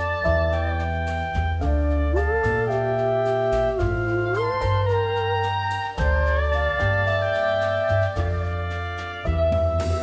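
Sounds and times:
instrumental backing track music: 0:00.0 - 0:10.0.

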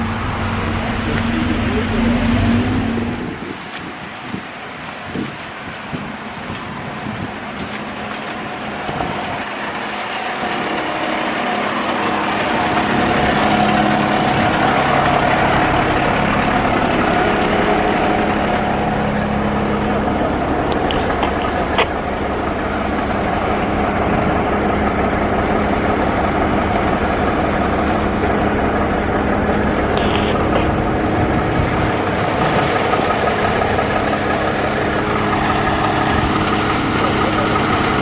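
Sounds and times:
diesel engines idling: 0:00.0 - 0:38.0.

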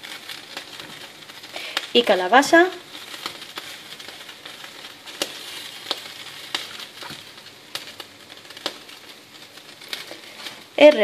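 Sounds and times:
pot of broth simmering: 0:00.0 - 0:11.0.

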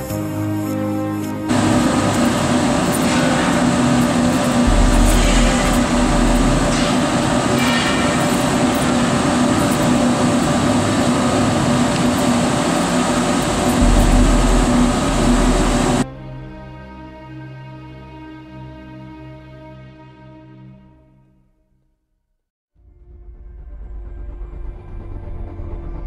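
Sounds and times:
blower fan rushing: 0:01.4 - 0:16.1
steady hum: 0:01.4 - 0:16.6
low rumble: 0:01.5 - 0:16.8.

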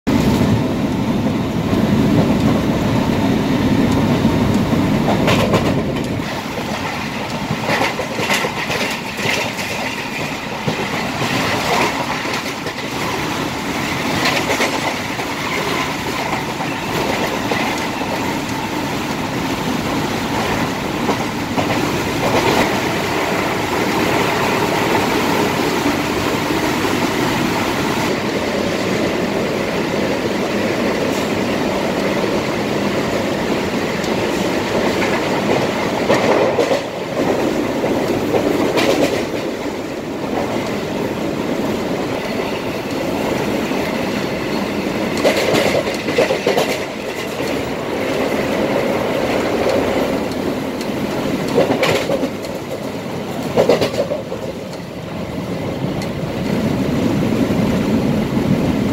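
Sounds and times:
electric train rumbling: 0:00.1 - 0:58.9
wheels clacking over rail joints: 0:03.8 - 0:19.4, 0:33.8 - 0:41.0, 0:41.8 - 0:56.6.

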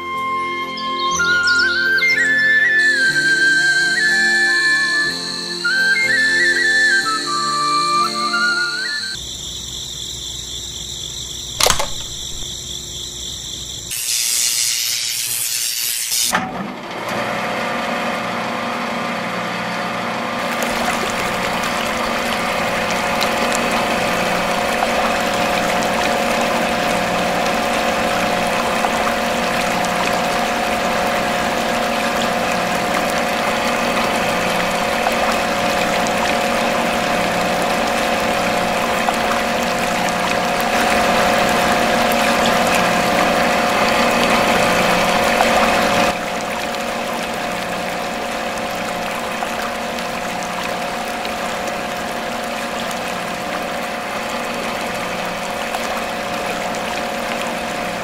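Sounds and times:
click: 0:11.6 - 0:12.5
water pouring and splashing: 0:11.6 - 0:12.6, 0:20.4 - 0:58.0.

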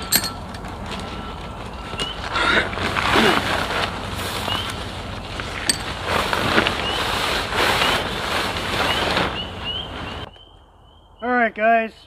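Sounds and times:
tent fabric rustling: 0:00.6 - 0:10.3.

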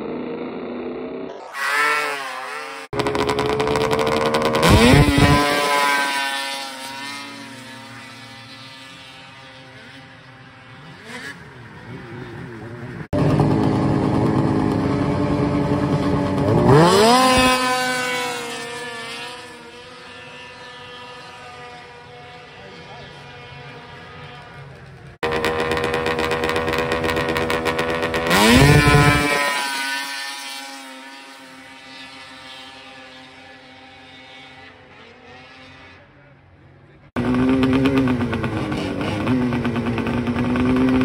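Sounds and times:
snowmobile engines revving: 0:00.0 - 0:41.0.

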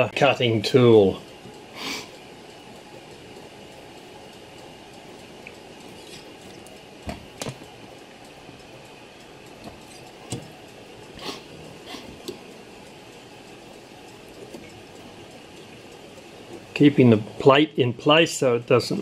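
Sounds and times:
faint steady hiss: 0:00.0 - 0:19.0
light clicks and knocks of press: 0:09.6 - 0:10.6.

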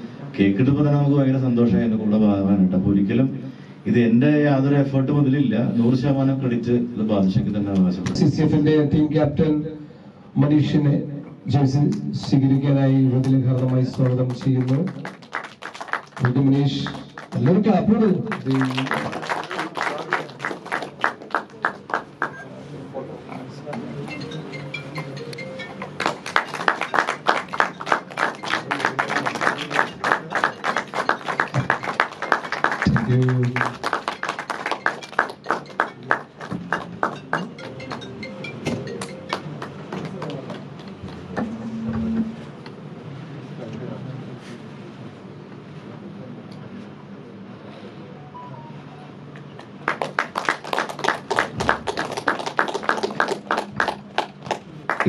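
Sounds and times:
people clapping: 0:11.9 - 0:22.6, 0:23.6 - 0:41.6, 0:49.4 - 0:55.0.

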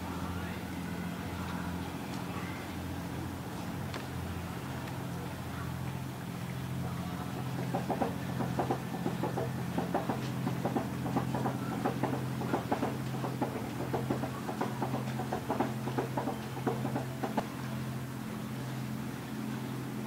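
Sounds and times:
boat engine humming: 0:00.0 - 0:20.0
water slapping against hull: 0:04.8 - 0:19.8.

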